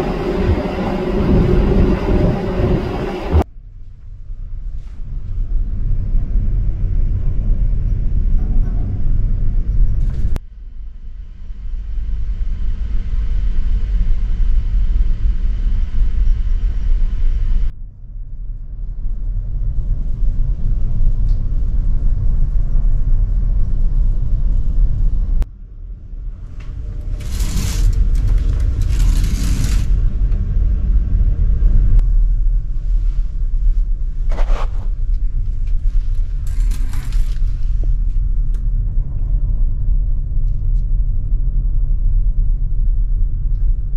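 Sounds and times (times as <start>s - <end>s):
ferry engine rumble: 0.0s - 3.5s.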